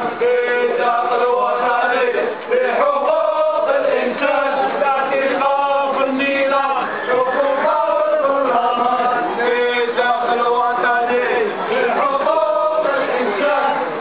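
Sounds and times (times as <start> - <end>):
male voices chanting: 0.0 - 14.0.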